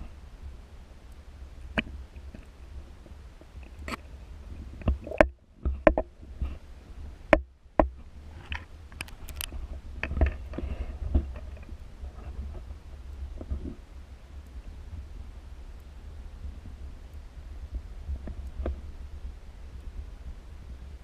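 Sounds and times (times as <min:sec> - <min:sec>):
underwater rumble: 0:00.0 - 0:21.0
sharp knocks and clicks: 0:04.8 - 0:06.1.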